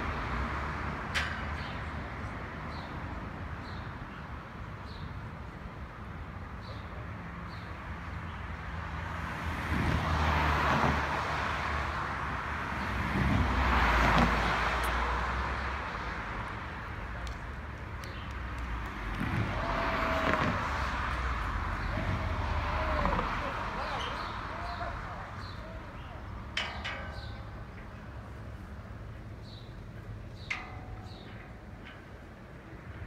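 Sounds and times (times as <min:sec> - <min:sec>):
vehicles passing on road: 0:00.0 - 0:33.0.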